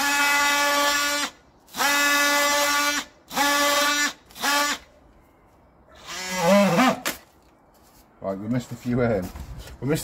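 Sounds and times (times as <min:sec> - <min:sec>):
multi-tool high buzz: 0:00.0 - 0:04.9, 0:06.0 - 0:07.1.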